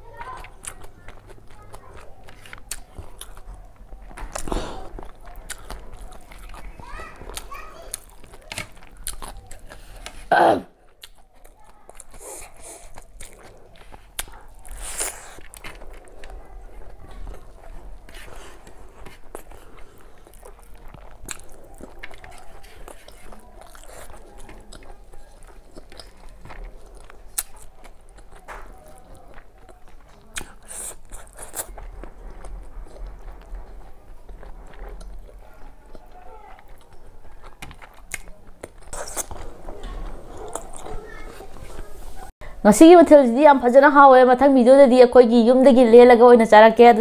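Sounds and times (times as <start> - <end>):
chewing and crunching: 0.0 - 42.3
fingers mixing rice: 11.4 - 41.9.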